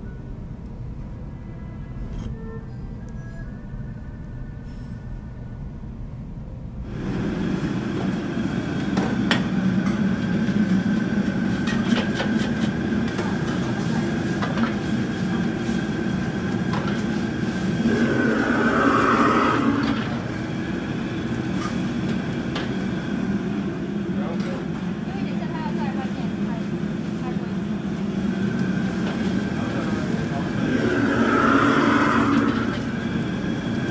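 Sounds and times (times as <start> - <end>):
gas burner roaring: 6.8 - 24.6, 27.8 - 33.9
sizzling steam hissing: 17.4 - 21.9, 30.0 - 33.9.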